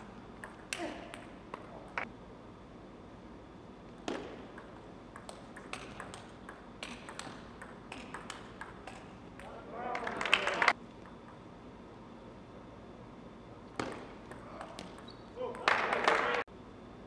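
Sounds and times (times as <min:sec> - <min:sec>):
table tennis ball clicking: 0:00.3 - 0:01.7, 0:04.0 - 0:09.6.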